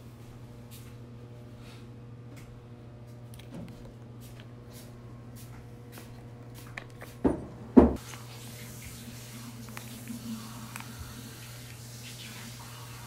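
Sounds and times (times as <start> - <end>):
steady low hum: 0.0 - 13.0
utensil scraping food: 8.0 - 13.0.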